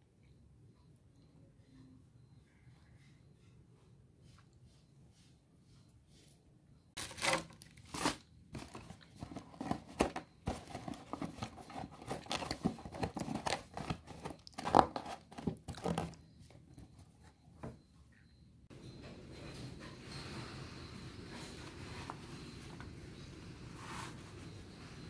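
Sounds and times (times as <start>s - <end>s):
plastic wrapping crinkling: 7.0s - 16.2s.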